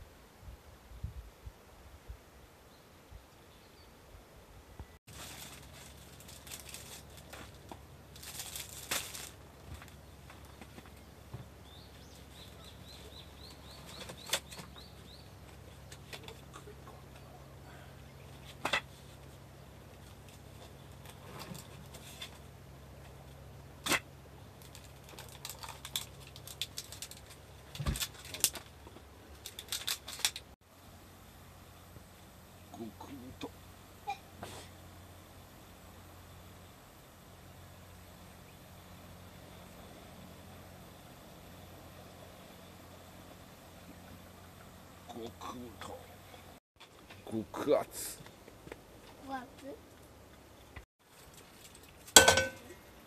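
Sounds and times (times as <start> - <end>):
plastic packaging rustling and crinkling: 5.1 - 11.0, 24.6 - 30.6.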